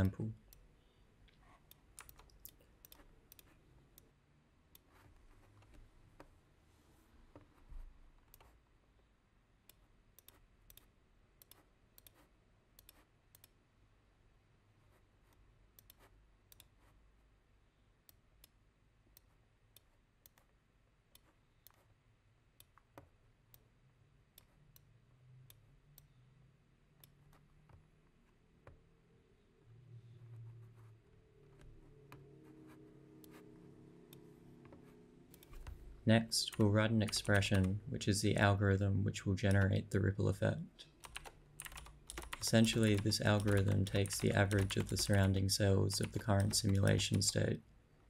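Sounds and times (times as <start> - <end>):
computer mouse clicks: 1.3 - 4.1, 8.2 - 8.6, 9.6 - 13.6, 15.3 - 16.9, 18.0 - 20.5, 34.1 - 35.9, 36.5 - 37.8, 41.0 - 47.4.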